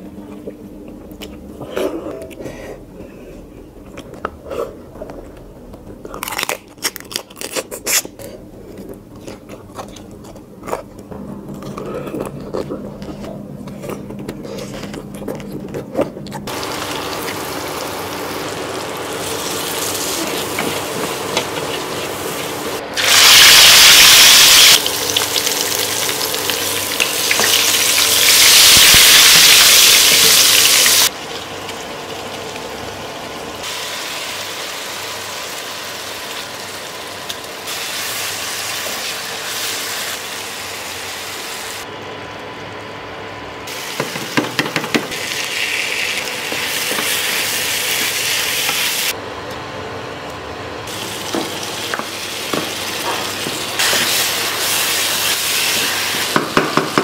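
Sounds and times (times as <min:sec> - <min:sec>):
biting and chewing: 0:05.9 - 0:16.5
fish frying in hot oil: 0:23.0 - 0:31.2.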